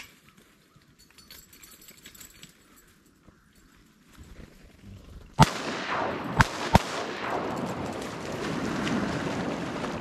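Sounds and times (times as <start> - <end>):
shotgun shots: 5.4 - 10.0.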